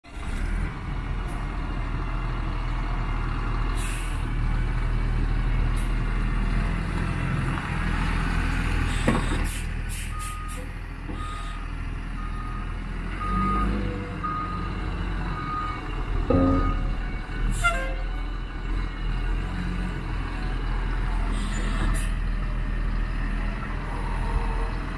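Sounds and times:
diesel truck engine running: 0:00.1 - 0:24.9
backup alarm beeping: 0:15.4 - 0:17.1.

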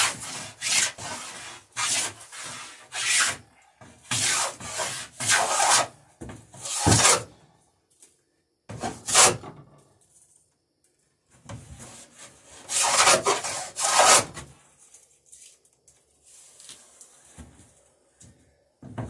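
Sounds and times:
hand plane shaving wood: 0:00.0 - 0:03.4, 0:04.1 - 0:05.9, 0:08.8 - 0:09.4, 0:12.5 - 0:14.4.

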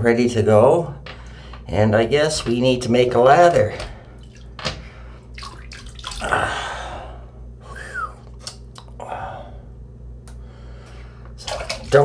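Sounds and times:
water splashing in sink: 0:01.9 - 0:06.6, 0:11.4 - 0:12.0.

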